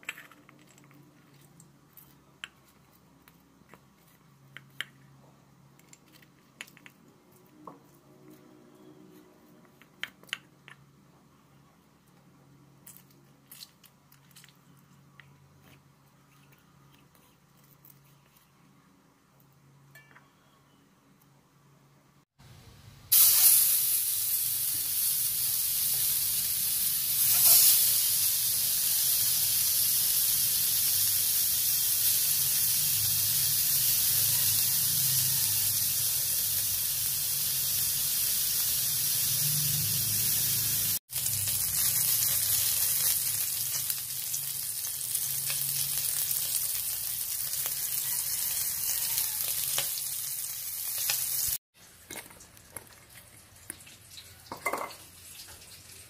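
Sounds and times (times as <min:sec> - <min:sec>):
meat sizzling on a grill pan: 0:23.1 - 0:51.6.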